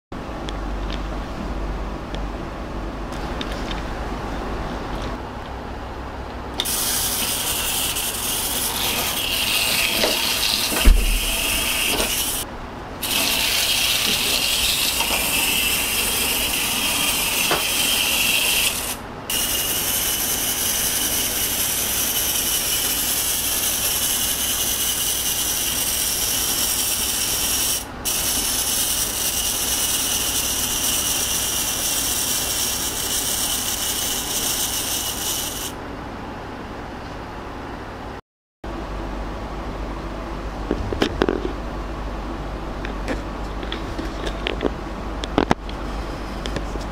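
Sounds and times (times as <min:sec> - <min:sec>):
clockwork toy train motor whirring: 0:06.6 - 0:12.4, 0:13.0 - 0:35.8.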